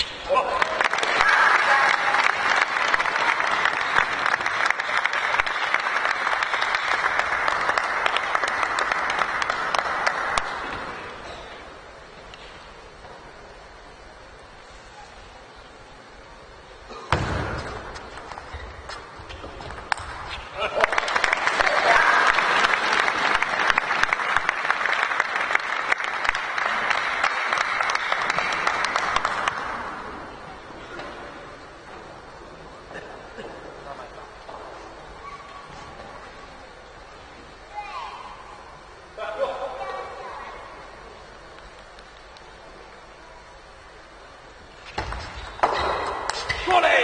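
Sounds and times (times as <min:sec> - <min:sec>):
audience applauding: 0:00.3 - 0:11.1, 0:20.6 - 0:30.3
crowd clapping: 0:00.3 - 0:11.2, 0:19.9 - 0:30.4.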